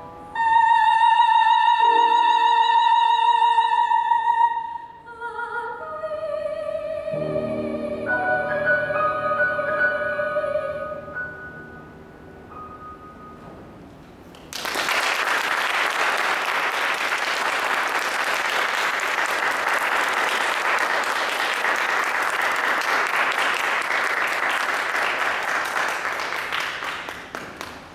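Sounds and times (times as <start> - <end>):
audience applauding: 14.3 - 27.9.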